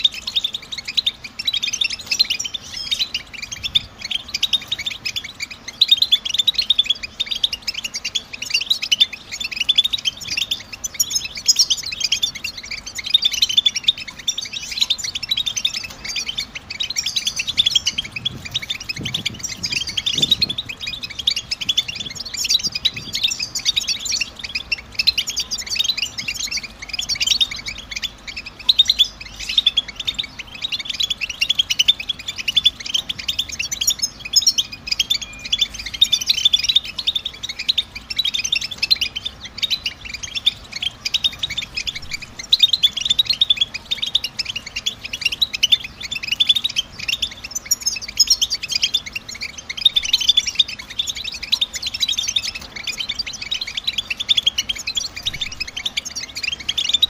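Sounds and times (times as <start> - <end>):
goldfinch chirps and trills: 0.0 - 57.0.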